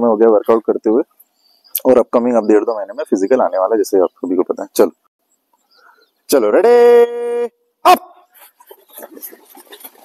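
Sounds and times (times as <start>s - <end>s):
runners' footsteps on dirt: 8.4s - 10.0s.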